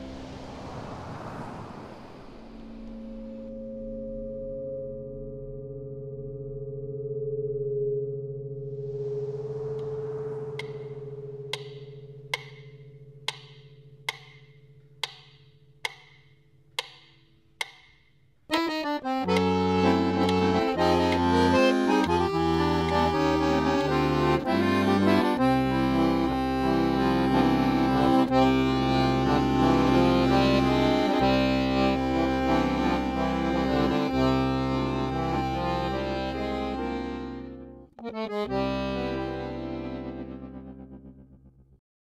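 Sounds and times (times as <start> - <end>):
low note: 2.6 - 15.6
sharp ticks: 10.6 - 24.5
accordion music: 18.5 - 41.1.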